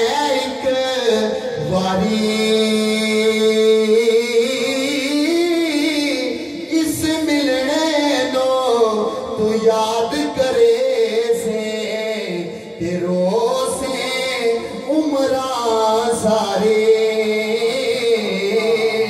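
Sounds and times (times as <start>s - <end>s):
man singing into microphone: 0.0s - 19.0s.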